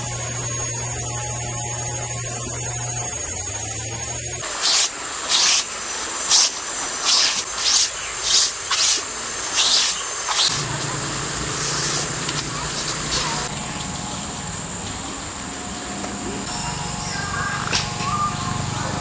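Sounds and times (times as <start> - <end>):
brush sweeping fabric: 4.4 - 10.8, 11.6 - 12.1.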